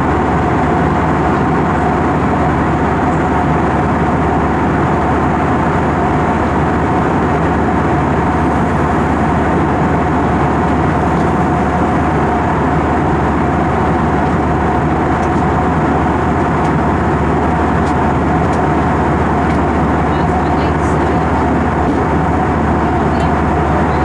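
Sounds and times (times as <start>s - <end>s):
airliner cabin rumble: 0.0s - 24.0s
mid-pitched hum: 0.0s - 24.0s.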